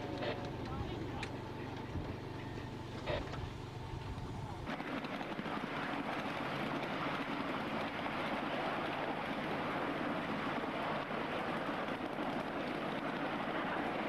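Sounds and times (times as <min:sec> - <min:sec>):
miniature train rumbling on track: 0:03.0 - 0:14.0.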